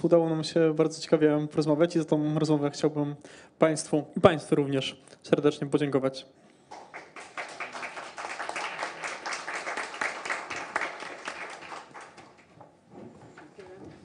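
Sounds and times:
audience applauding: 6.7s - 12.6s.

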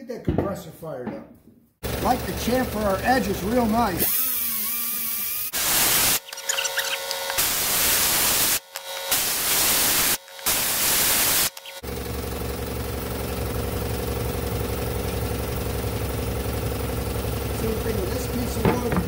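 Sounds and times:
air compressor humming: 1.8s - 19.0s
pneumatic grinder hissing: 4.0s - 11.8s.

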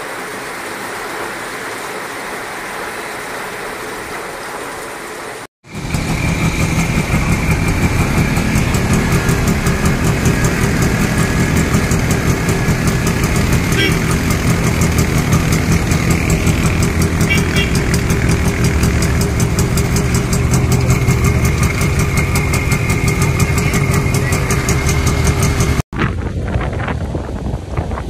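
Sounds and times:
heavy rain: 0.0s - 25.8s
vehicle engines droning: 5.6s - 25.8s.

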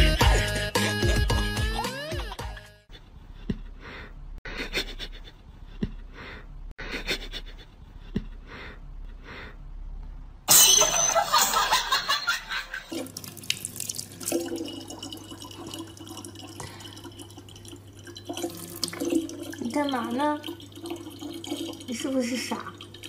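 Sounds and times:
water running into plastic bottle: 12.9s - 23.0s.

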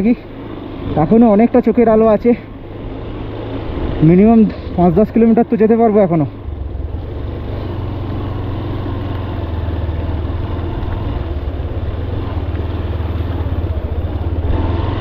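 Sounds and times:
motorcycle engine at low revs: 0.0s - 15.0s.

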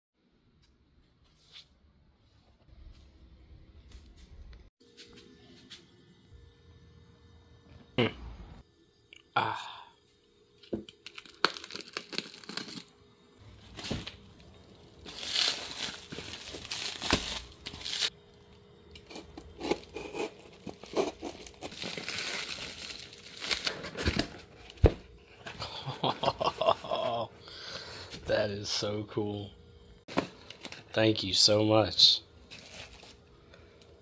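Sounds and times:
plastic wrap crinkling: 11.0s - 12.9s, 13.5s - 18.1s, 19.7s - 24.9s, 32.5s - 33.3s.

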